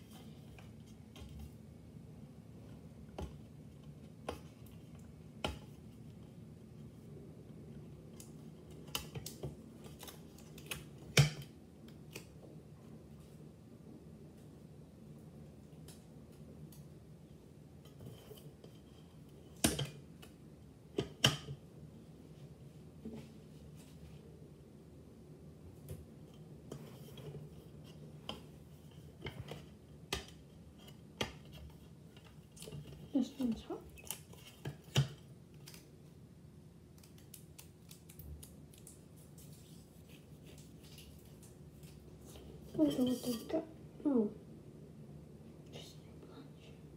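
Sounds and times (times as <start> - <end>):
low room hum: 0.0 - 46.9.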